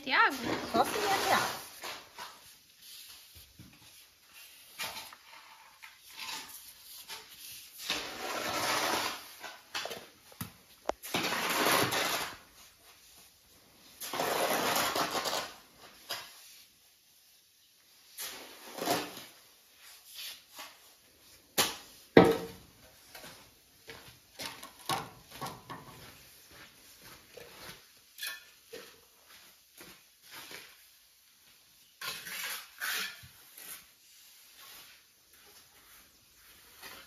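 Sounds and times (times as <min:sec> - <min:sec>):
tools scraping and knocking on tiles: 0:00.3 - 0:13.0, 0:14.0 - 0:16.6, 0:21.6 - 0:30.9, 0:31.8 - 0:33.9.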